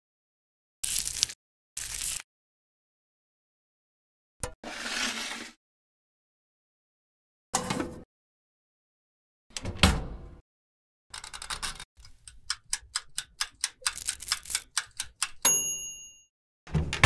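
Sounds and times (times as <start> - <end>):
oven door shutting: 9.6 - 10.4
timer dial ticking: 11.3 - 15.5.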